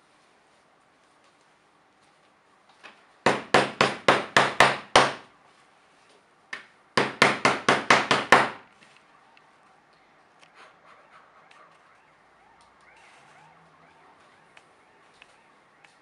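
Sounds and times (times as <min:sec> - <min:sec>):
sharp wooden knocks: 0:03.2 - 0:05.2, 0:07.0 - 0:08.6.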